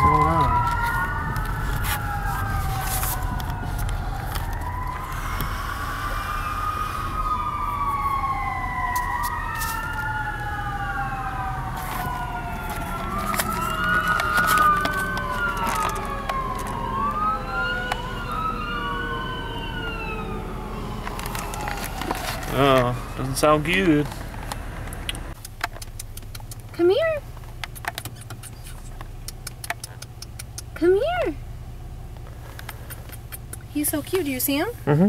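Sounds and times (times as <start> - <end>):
long falling siren tone: 0.0 - 23.7
emergency vehicle sirens: 0.0 - 25.4.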